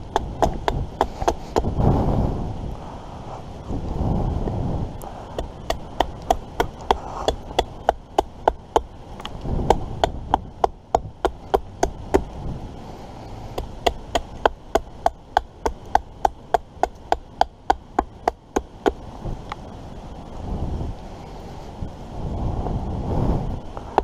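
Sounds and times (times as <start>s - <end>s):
light chopping on wood: 0.1s - 1.7s.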